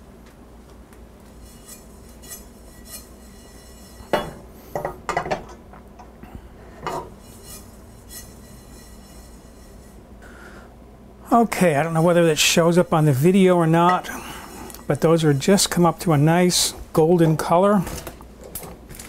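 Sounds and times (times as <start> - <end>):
metal pan clanking and scraping: 1.4 - 5.6, 6.7 - 10.0.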